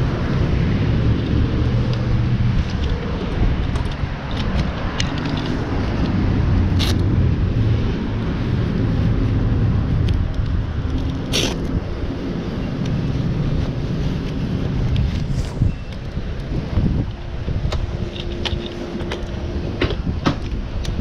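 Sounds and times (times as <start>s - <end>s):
leather gloves and jacket rustling: 12.5s - 19.5s.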